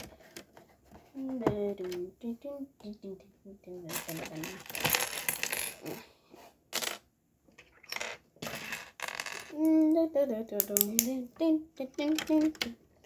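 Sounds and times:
plastic bricks clattering: 0:03.9 - 0:06.0.

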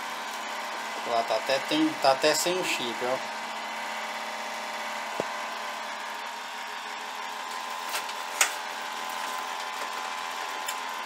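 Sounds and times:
computer cooling fans whirring: 0:00.0 - 0:11.0.

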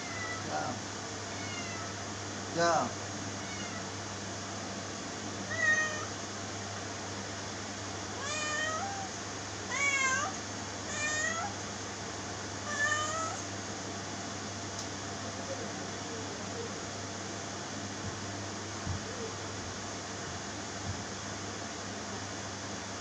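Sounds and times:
cat meowing: 0:00.0 - 0:00.5, 0:01.3 - 0:01.9, 0:03.4 - 0:03.9, 0:05.5 - 0:06.1, 0:08.2 - 0:09.1, 0:09.7 - 0:11.6, 0:12.6 - 0:13.5
steady low hum: 0:00.0 - 0:23.0.

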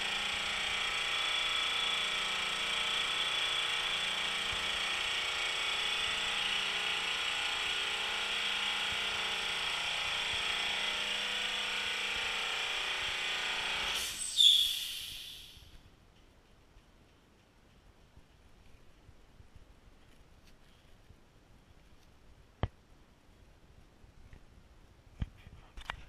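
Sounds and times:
air compressor running: 0:00.0 - 0:15.8
loud burst of hissing air: 0:13.9 - 0:15.7.

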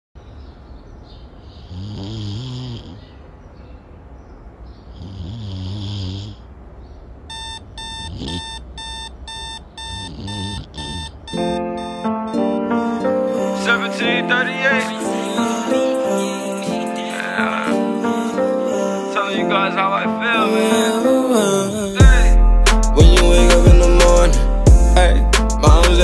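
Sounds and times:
person snoring: 0:01.7 - 0:03.1, 0:04.9 - 0:06.5, 0:08.0 - 0:08.6, 0:10.1 - 0:11.2
alarm clock beeping: 0:07.3 - 0:12.4.

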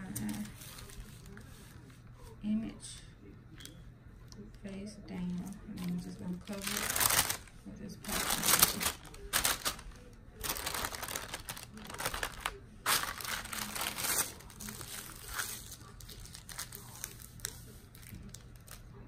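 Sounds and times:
plastic sheet crinkling: 0:00.0 - 0:01.9, 0:05.7 - 0:19.0.

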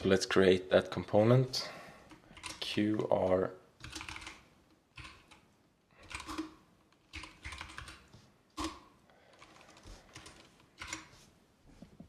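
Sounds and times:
typing on a keyboard: 0:02.1 - 0:02.6, 0:03.8 - 0:05.4, 0:06.0 - 0:11.1.

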